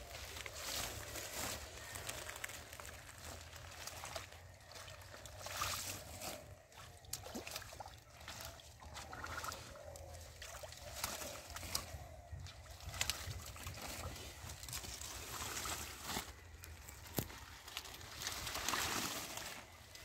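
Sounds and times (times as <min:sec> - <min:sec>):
rustle of water plants: 0:00.0 - 0:20.0
hands sloshing in muddy water: 0:03.3 - 0:16.4.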